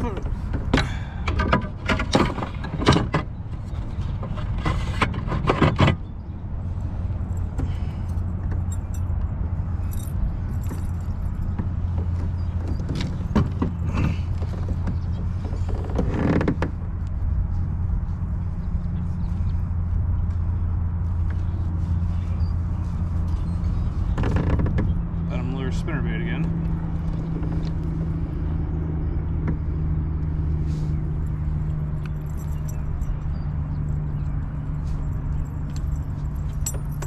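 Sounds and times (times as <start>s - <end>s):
steady low rumble: 6.0s - 37.0s
fishing gear clicking and rattling: 7.2s - 16.7s, 34.9s - 37.0s.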